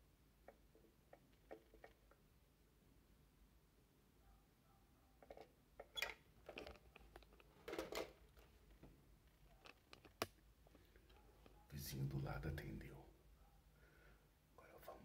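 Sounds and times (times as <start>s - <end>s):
rustling handling noises: 6.4s - 11.7s.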